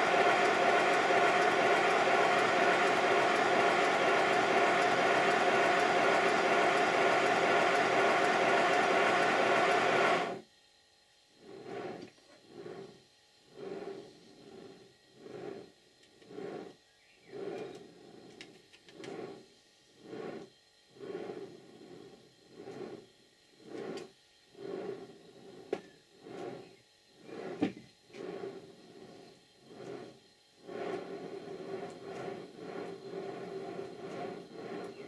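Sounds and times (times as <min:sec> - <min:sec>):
soft regular swish: 0:00.0 - 0:10.4, 0:11.5 - 0:12.9, 0:13.5 - 0:16.7, 0:20.0 - 0:23.0, 0:23.7 - 0:26.6, 0:28.2 - 0:35.0.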